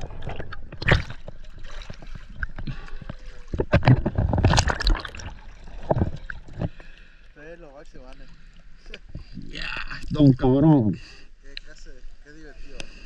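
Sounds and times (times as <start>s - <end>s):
water splashing and sloshing: 0.0s - 9.4s.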